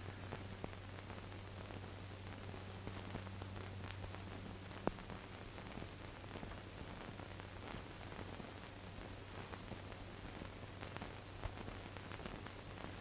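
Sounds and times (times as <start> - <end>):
film soundtrack hiss: 0.0 - 13.0
faint clicks: 2.3 - 6.6.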